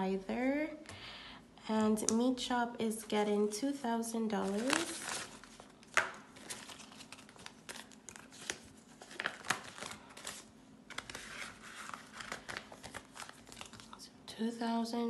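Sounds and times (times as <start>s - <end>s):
paper banknotes rustling: 6.4s - 14.0s.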